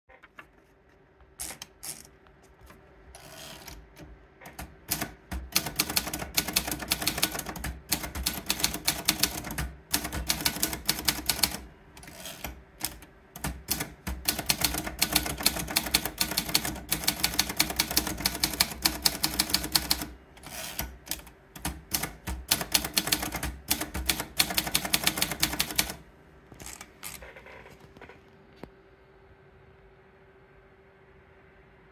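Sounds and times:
typewriter keystrokes: 0:03.4 - 0:26.0.

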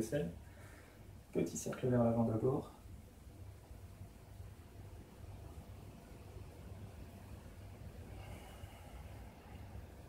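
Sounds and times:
faint steady hiss: 0:00.0 - 0:10.0
low hum: 0:02.7 - 0:10.0.

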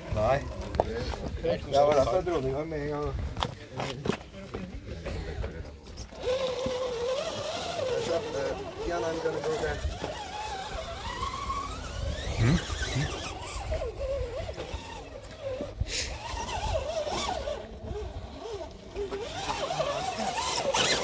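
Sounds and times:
electric motor whining: 0:06.0 - 0:21.0.

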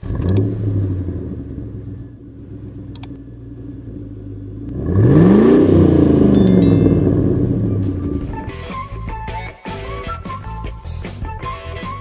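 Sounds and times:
car engine idling and revving: 0:00.0 - 0:06.3.

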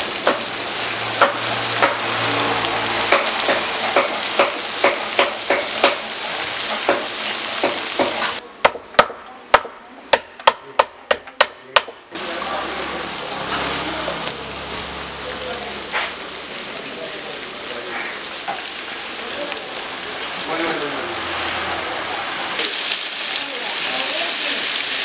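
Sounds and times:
fish sizzling in oil: 0:00.0 - 0:08.4, 0:12.2 - 0:25.0
oil popping and crackling: 0:00.0 - 0:08.4, 0:15.2 - 0:25.0.

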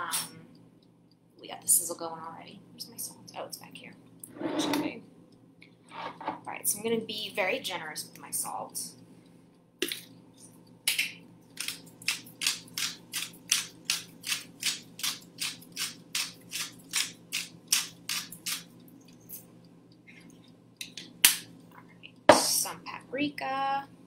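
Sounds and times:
salt grinder grinding: 0:11.6 - 0:18.7.

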